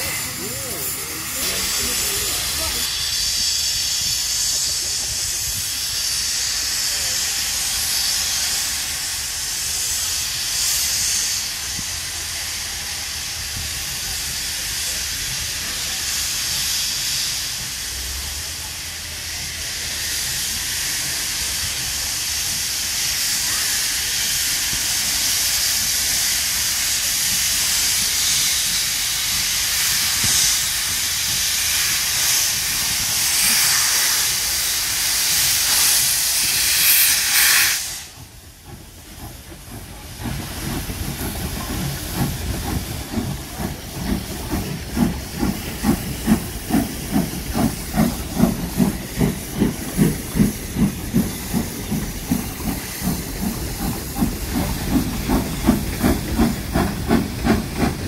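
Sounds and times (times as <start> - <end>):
steam hissing from locomotive: 0.0 - 58.0
steam locomotive chuffing: 0.0 - 58.0.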